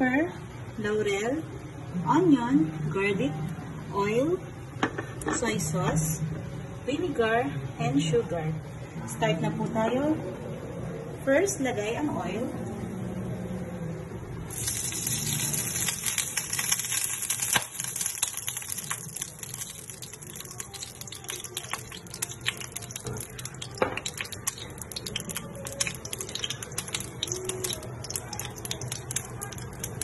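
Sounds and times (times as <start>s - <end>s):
oil sizzling and popping: 14.5s - 30.0s.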